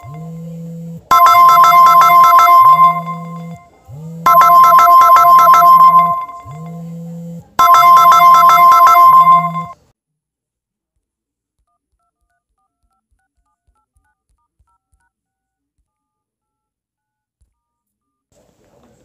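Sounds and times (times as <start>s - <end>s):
smartphone ringtone: 0.0s - 0.4s, 1.1s - 7.0s, 7.6s - 9.8s.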